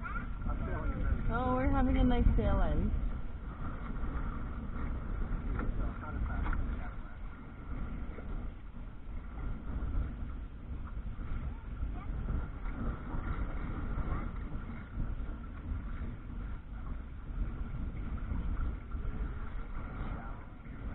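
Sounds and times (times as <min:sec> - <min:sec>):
water washing along hull: 0:00.0 - 0:20.9
wind buffeting microphone: 0:00.0 - 0:20.9.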